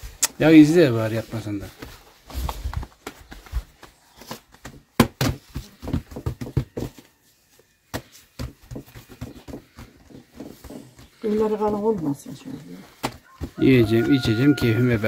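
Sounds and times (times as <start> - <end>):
hands slapping bread dough: 7.8 - 15.0.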